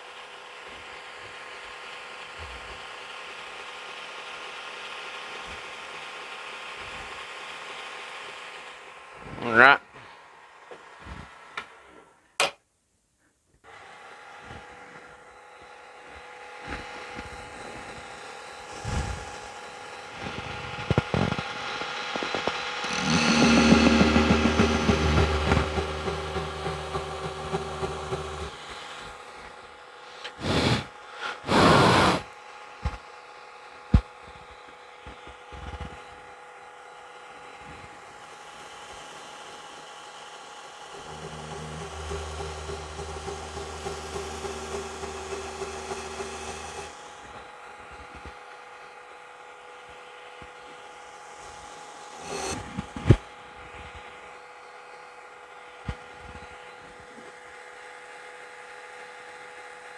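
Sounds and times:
belt grinder running: 0:17.0 - 0:29.3, 0:39.3 - 0:47.3
loud rushes of noise: 0:18.8 - 0:29.3, 0:40.9 - 0:47.1.

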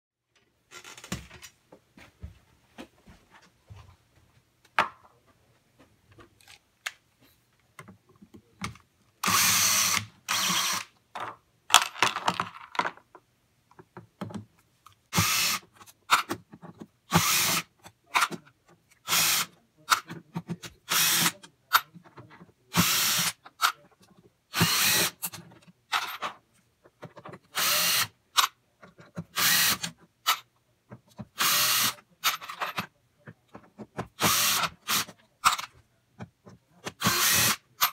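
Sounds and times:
cordless drill running: 0:09.2 - 0:10.9, 0:15.2 - 0:15.6, 0:17.1 - 0:17.6, 0:19.1 - 0:19.5, 0:20.9 - 0:21.3, 0:22.8 - 0:23.3, 0:24.6 - 0:25.2, 0:27.6 - 0:28.1, 0:29.4 - 0:29.9, 0:31.4 - 0:31.9, 0:34.2 - 0:35.1, 0:37.0 - 0:37.6.

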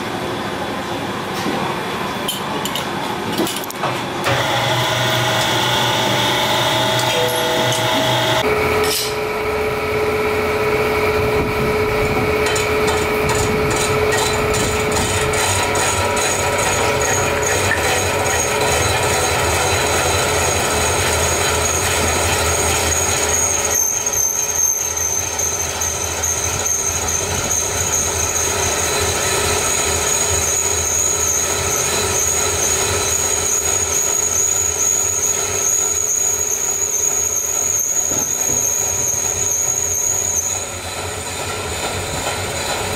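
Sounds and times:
metal lathe running: 0:04.2 - 0:42.9
thin high cutting whine: 0:04.3 - 0:40.8.

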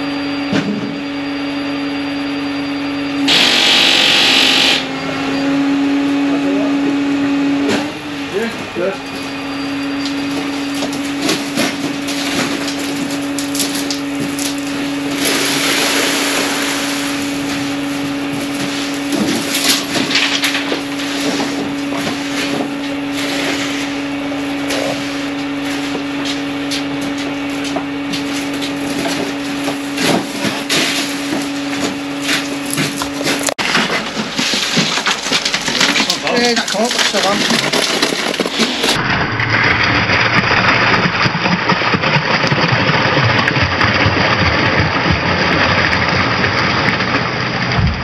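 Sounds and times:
mechanical hum: 0:00.0 - 0:48.0
rake scraping wet concrete: 0:10.1 - 0:41.3.

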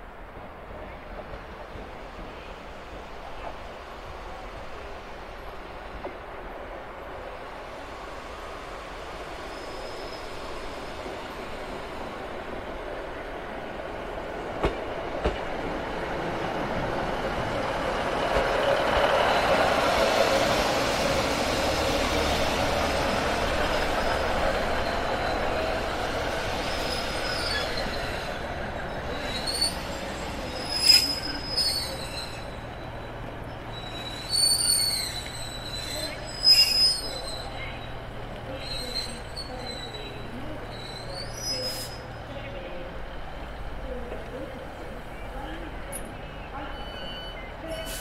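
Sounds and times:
diesel train rumbling past: 0:00.0 - 0:48.0
train wheel squeals: 0:09.3 - 0:11.0, 0:23.8 - 0:42.2, 0:46.6 - 0:48.0.

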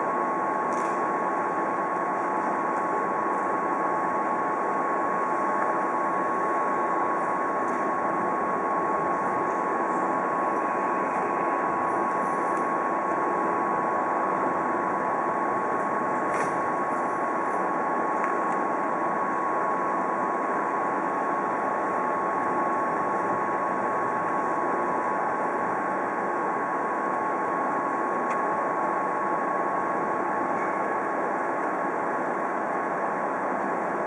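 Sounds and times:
electric locomotive humming and whining: 0:00.0 - 0:34.0.

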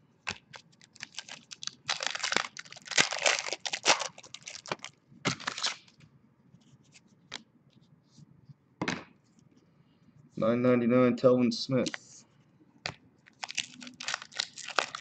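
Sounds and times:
foil wrapper tearing and crinkling: 0:00.5 - 0:05.9, 0:13.3 - 0:15.0.

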